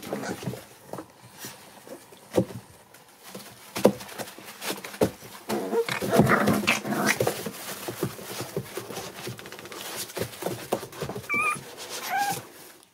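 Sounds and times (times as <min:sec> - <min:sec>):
scratches and scuffles: 0:00.0 - 0:12.9
high puppy squeal: 0:11.2 - 0:12.4
puppies whimpering and squeaking: 0:11.2 - 0:12.5.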